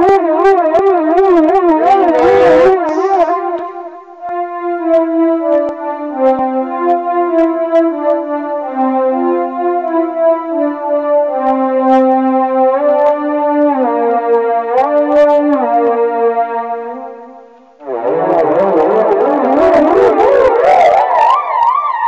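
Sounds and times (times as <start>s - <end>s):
buzzy synthesizer notes and chords: 1.6s - 4.4s, 17.8s - 22.0s.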